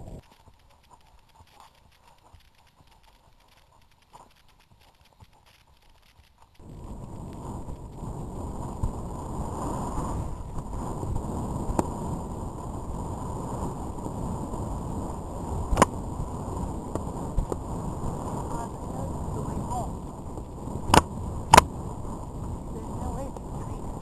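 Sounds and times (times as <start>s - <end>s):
wind buffeting microphone: 6.6s - 24.0s
sharp clicks: 15.7s - 15.9s, 20.9s - 21.7s.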